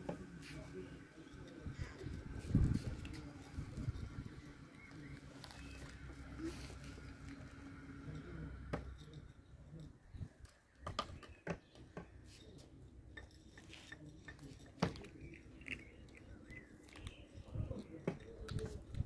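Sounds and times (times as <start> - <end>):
kittens crunching dry kibble: 1.7 - 8.0, 13.3 - 19.0.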